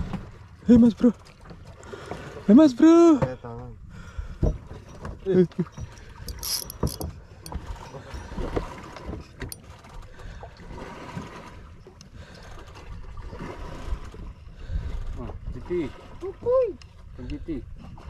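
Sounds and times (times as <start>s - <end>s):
water noise: 0.0s - 18.0s
handling knocks and clicks: 6.3s - 7.6s.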